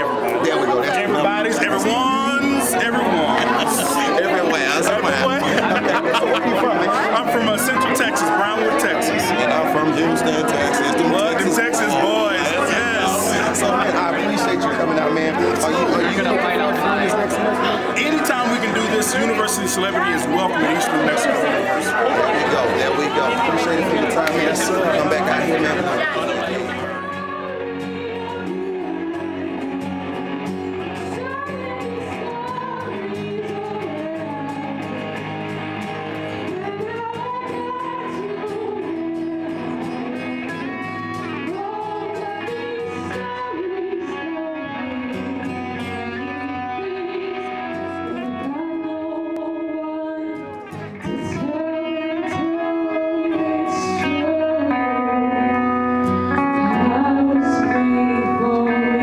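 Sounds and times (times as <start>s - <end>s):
person singing: 0.0s - 35.2s, 36.3s - 59.0s
guitar accompaniment: 0.0s - 59.0s.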